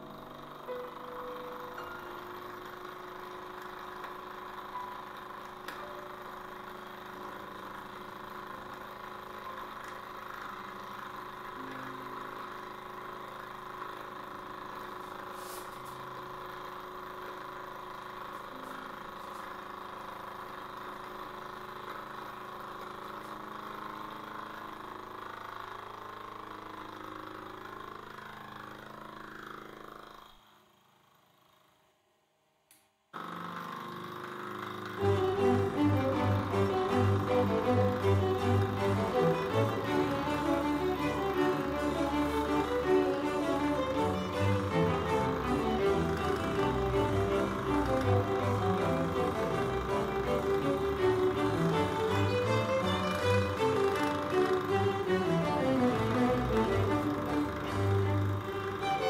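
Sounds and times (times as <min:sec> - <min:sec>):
milling machine humming: 0:00.0 - 0:30.8, 0:33.2 - 0:59.0
spindle motor winding down: 0:00.0 - 0:31.9, 0:33.2 - 0:59.0.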